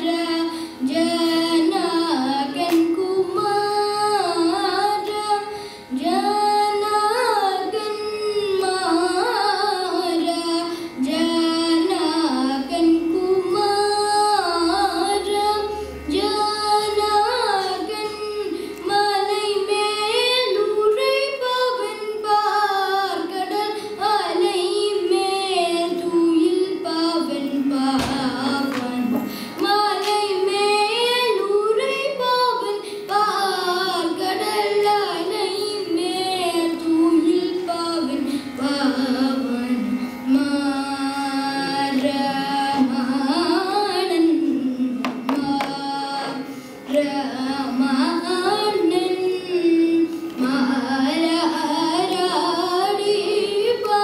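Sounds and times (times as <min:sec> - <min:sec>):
boy singing: 0:00.0 - 0:54.0
short breaths: 0:05.5 - 0:05.9, 0:29.2 - 0:29.6, 0:46.5 - 0:46.9.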